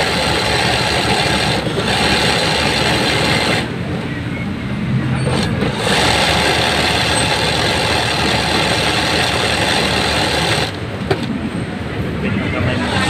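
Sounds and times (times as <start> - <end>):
sewing machine running fast: 0.0 - 3.7, 5.3 - 10.8.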